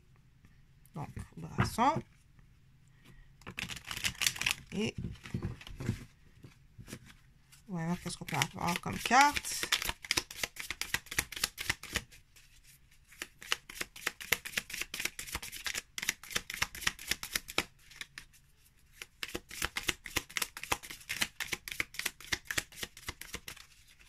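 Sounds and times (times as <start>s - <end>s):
cards being shuffled: 3.4s - 6.1s, 7.9s - 12.1s, 13.1s - 18.2s, 18.9s - 24.0s.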